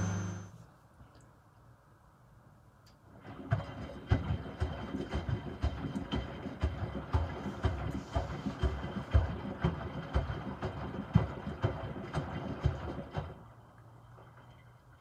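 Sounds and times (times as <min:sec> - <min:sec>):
washing machine drum splashing thuds: 0:03.2 - 0:13.4.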